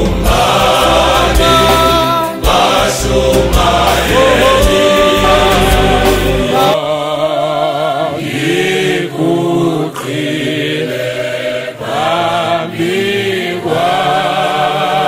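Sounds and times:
deep bass: 0:00.0 - 0:06.7
choir singing in harmony: 0:00.0 - 0:15.0.

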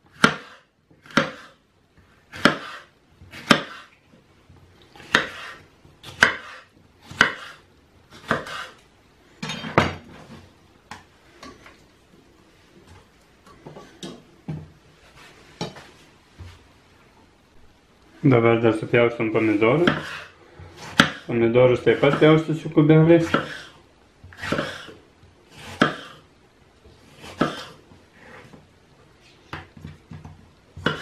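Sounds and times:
knife chopping on wooden board: 0:00.1 - 0:01.6, 0:02.3 - 0:03.9, 0:05.0 - 0:07.6, 0:08.2 - 0:08.8, 0:19.8 - 0:21.3, 0:23.2 - 0:23.7, 0:24.4 - 0:24.9, 0:25.6 - 0:26.2, 0:27.1 - 0:27.8, 0:30.8 - 0:31.0
scrape on cutting board: 0:00.3 - 0:01.6, 0:02.3 - 0:04.0, 0:05.0 - 0:05.7, 0:06.3 - 0:07.6, 0:08.2 - 0:08.8, 0:15.0 - 0:15.9, 0:19.4 - 0:21.2, 0:23.2 - 0:26.2, 0:27.0 - 0:28.6.

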